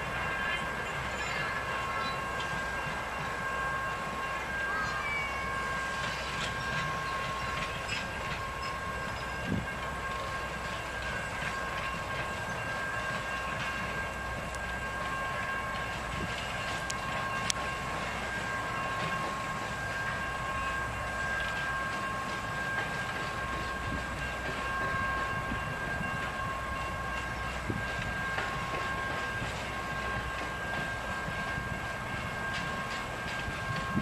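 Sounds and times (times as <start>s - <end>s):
train wheels rumbling: 0.0s - 34.0s.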